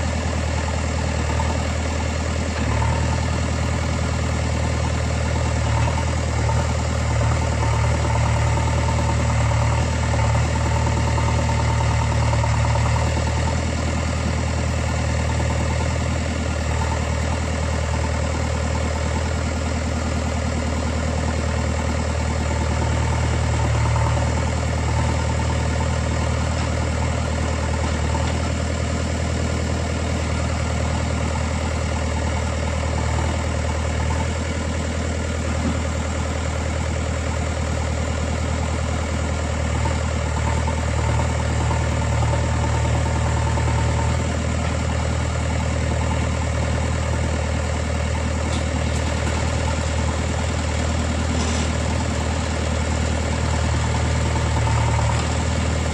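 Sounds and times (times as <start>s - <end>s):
diesel engine idling: 0.0s - 55.9s.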